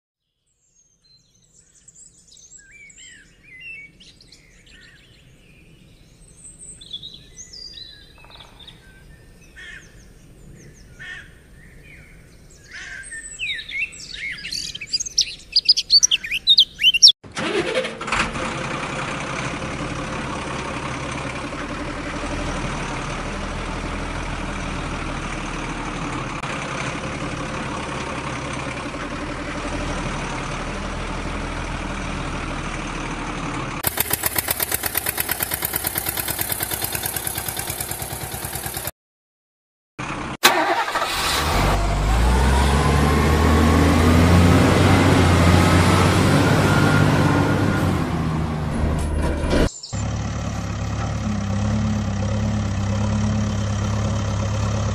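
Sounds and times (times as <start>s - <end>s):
birds chirping and calling: 1.1s - 17.2s, 49.7s - 50.1s
truck engine running: 14.2s - 38.9s, 40.0s - 54.9s.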